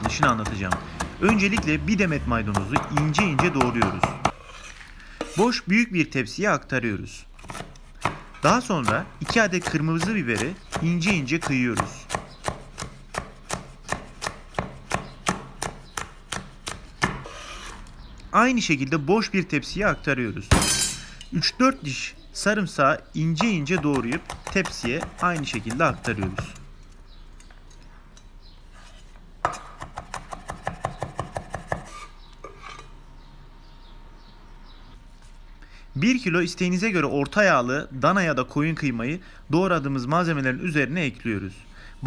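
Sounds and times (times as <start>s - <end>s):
knife chopping on cutting board: 0.0s - 1.9s, 2.5s - 4.4s, 7.4s - 17.4s, 23.4s - 26.6s, 29.4s - 32.1s.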